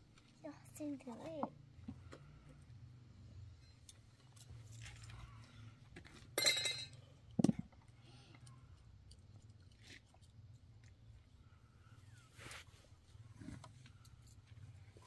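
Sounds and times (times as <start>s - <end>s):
wire and fittings clinking: 6.1s - 7.6s.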